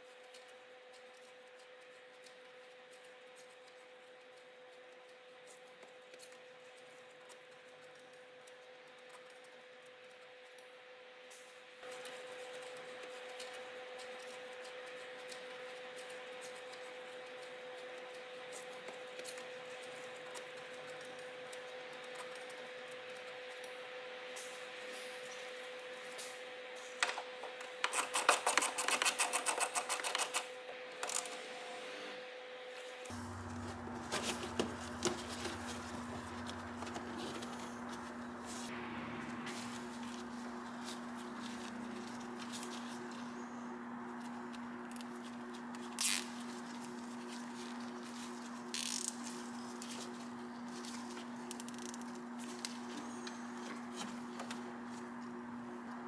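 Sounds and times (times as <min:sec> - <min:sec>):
steady low hum: 0:32.5 - 0:56.0.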